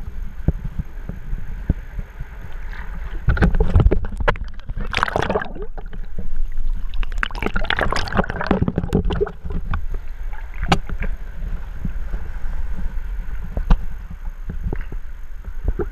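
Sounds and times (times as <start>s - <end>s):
underwater rumble: 0.0s - 15.9s
underwater clicks and crackles: 0.4s - 15.9s
water sloshing and gurgling: 0.6s - 15.9s.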